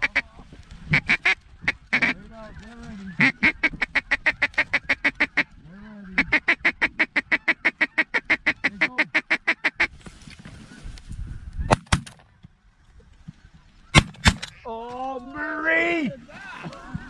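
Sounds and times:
duck call quacking: 0.9 - 2.2, 3.0 - 5.5, 6.2 - 9.9
sharp crack: 11.7 - 12.3, 13.9 - 14.6.

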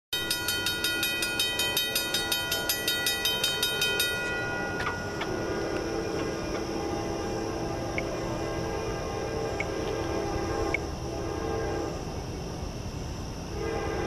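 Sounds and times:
crossing bell ringing rapidly: 0.2 - 9.6.

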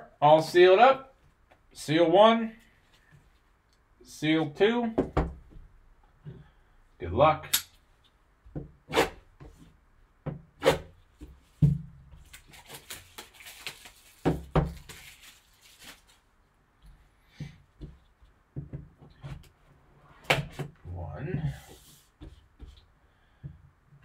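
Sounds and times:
rustling: 12.2 - 17.1.

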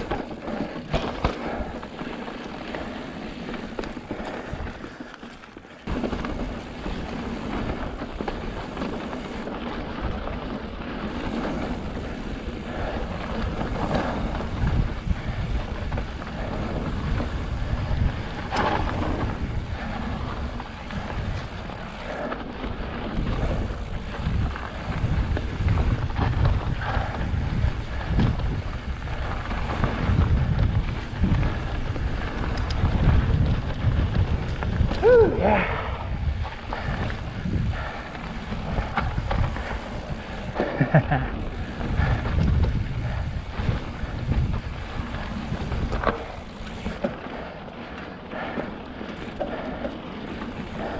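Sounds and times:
bike knocks and rattles: 0.0 - 35.4
bike tyres crunching on rock: 0.0 - 50.9
wind buffeting microphone: 5.8 - 50.9.

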